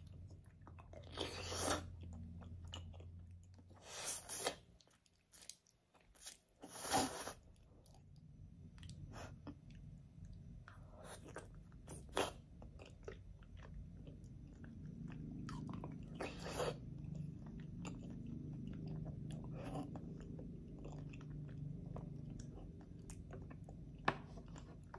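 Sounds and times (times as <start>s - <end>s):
person chewing and biting food: 0.1s - 8.1s.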